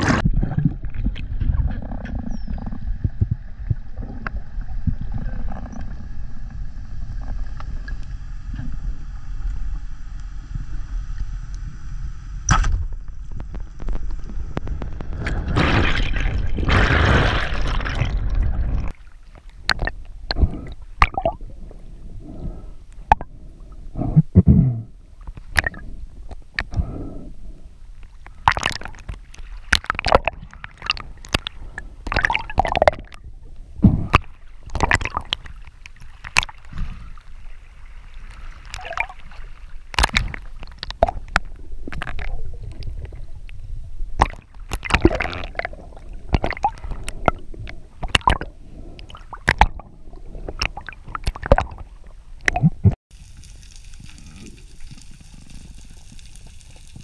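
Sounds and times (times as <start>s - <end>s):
water gurgling underwater: 14.7s - 23.3s, 28.3s - 37.2s, 38.3s - 57.0s.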